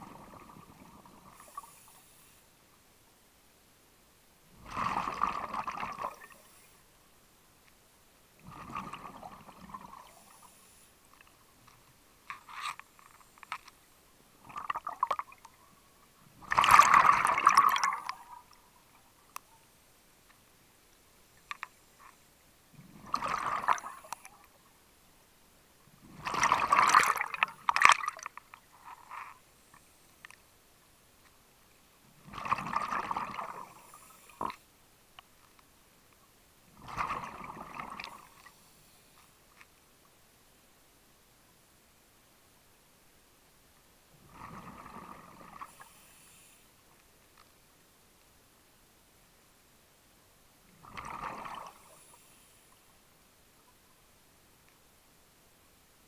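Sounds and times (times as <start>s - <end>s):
underwater exhaled air bubbling: 0.0s - 1.9s, 4.6s - 6.6s, 8.4s - 10.6s, 16.4s - 18.6s, 22.7s - 24.3s, 26.0s - 28.2s, 32.2s - 34.5s, 36.8s - 38.4s, 44.2s - 46.0s, 50.8s - 52.2s
faint clicks: 11.1s - 13.8s, 19.2s - 22.2s, 24.0s - 24.6s, 27.7s - 30.4s, 54.6s - 54.9s.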